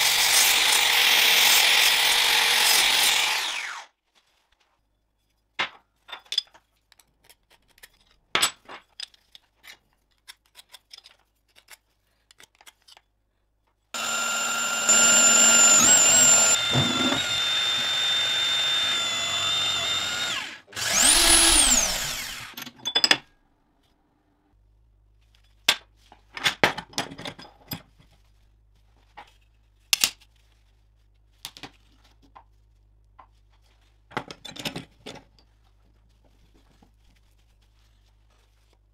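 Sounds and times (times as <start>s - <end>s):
drill drilling steel: 0.0s - 3.9s, 14.0s - 22.6s.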